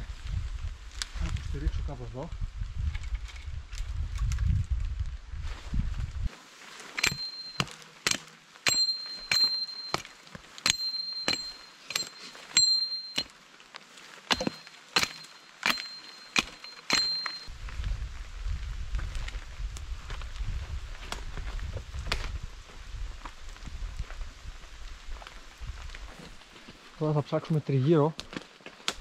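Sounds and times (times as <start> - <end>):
metal blade chopping wood: 6.9 - 13.4, 14.3 - 17.5.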